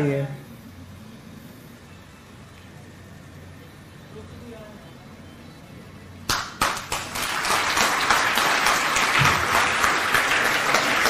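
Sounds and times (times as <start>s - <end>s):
audience applause: 6.3s - 11.0s.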